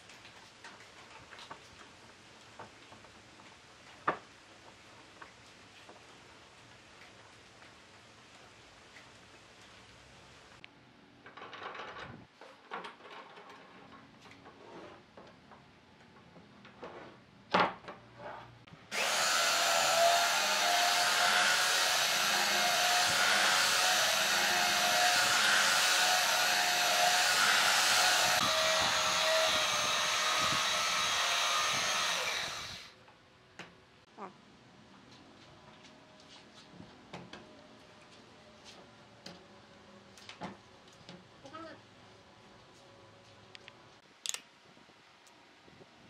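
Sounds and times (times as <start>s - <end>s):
belt sander sanding wood: 18.9s - 32.8s.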